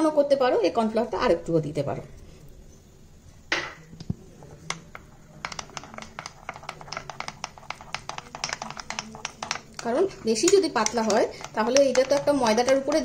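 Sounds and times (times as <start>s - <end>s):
spoon scraping bowl: 4.4s - 13.0s
spoon clicking against bowl: 4.7s - 13.0s.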